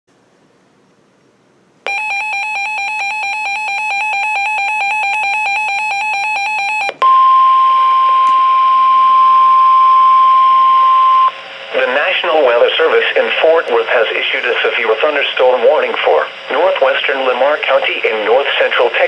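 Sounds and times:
steady single-pitch alarm tone: 1.8 - 12.1
fast-warbling two-tone alarm beep: 1.9 - 11.4
radio hiss: 11.3 - 19.0.

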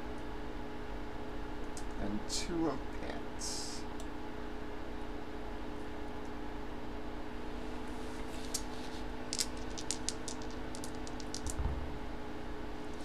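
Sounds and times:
electrical hum: 0.0 - 13.0
dice clicking: 8.4 - 11.6.

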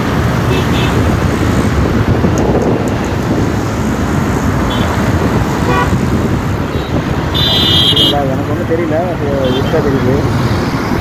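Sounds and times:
road traffic rumble: 0.0 - 11.0
vehicle horn toot: 5.6 - 6.0, 7.3 - 8.2.

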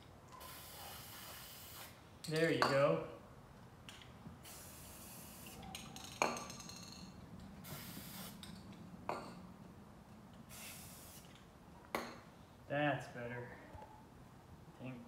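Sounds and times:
aerosol spray can hissing: 0.4 - 2.0, 4.4 - 5.6, 7.6 - 8.4, 10.5 - 11.3.

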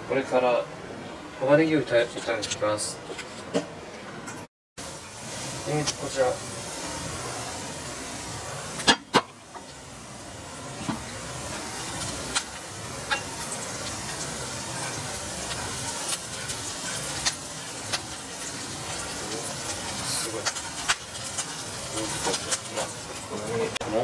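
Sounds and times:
onion sizzling in a frying pan: 4.8 - 24.0.

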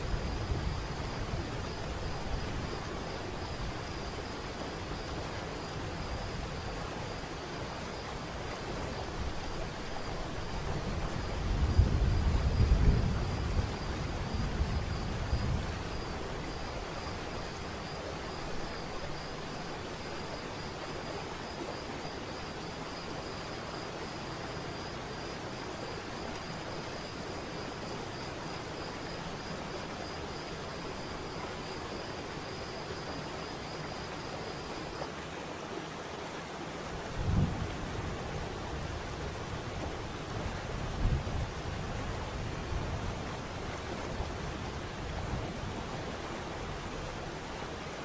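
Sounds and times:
faint high steady tone: 0.0 - 36.6.

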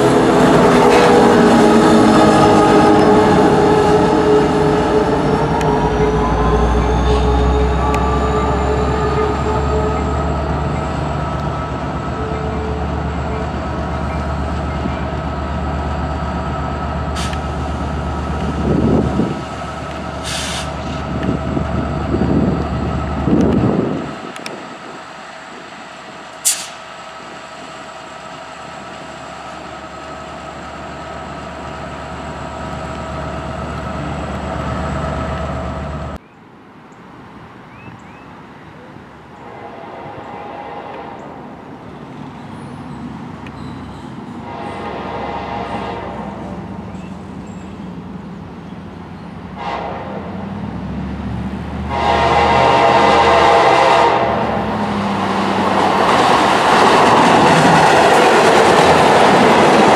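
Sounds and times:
crossing signal ringing: 0.0 - 15.2
passenger train rumbling by: 0.0 - 59.9.

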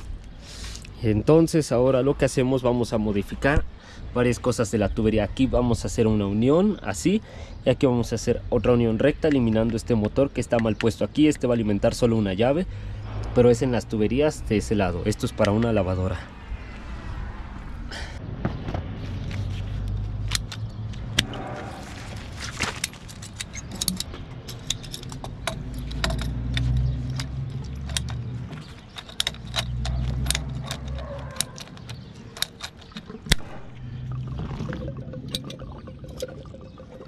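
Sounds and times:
metal tools clinking on fittings: 22.6 - 33.1
low rumble: 33.3 - 36.8.

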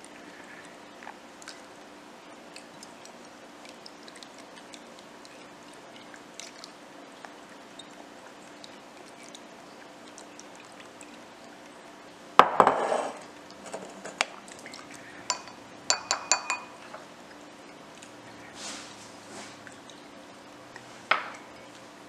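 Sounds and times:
plastic spoon tapping glass: 15.3 - 16.8.

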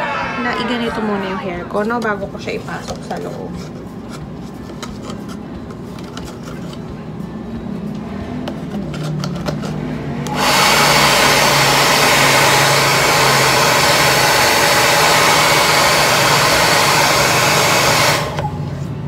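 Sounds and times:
hair dryer blowing: 10.2 - 18.7.

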